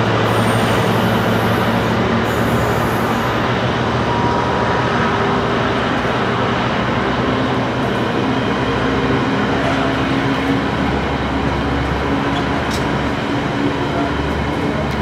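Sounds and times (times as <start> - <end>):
train rumbling past: 0.0 - 15.0.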